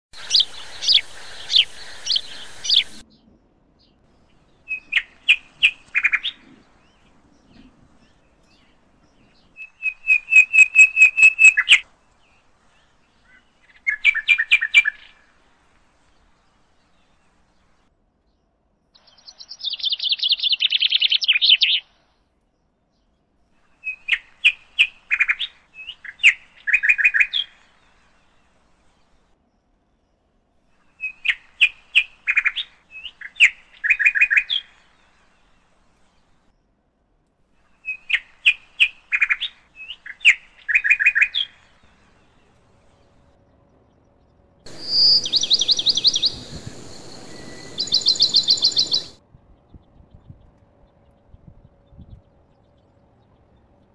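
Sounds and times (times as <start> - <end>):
steady hiss: 0.2 - 3.0, 44.7 - 49.2
bird whistling song: 0.2 - 3.2, 4.6 - 7.0, 8.5 - 11.8, 13.3 - 15.2, 19.0 - 21.9, 23.7 - 27.9, 30.8 - 35.0, 37.7 - 42.0, 44.7 - 50.4
bird chirps: 0.2 - 15.3, 19.0 - 22.2, 30.7 - 36.2, 37.6 - 53.9.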